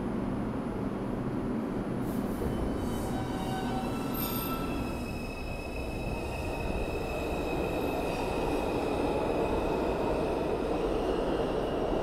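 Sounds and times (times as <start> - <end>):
subway train rumbling: 0.0 - 12.0.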